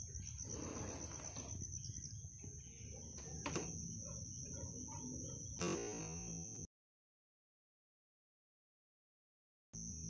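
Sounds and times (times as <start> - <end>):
night insects trilling: 0.0 - 6.7, 9.8 - 10.0.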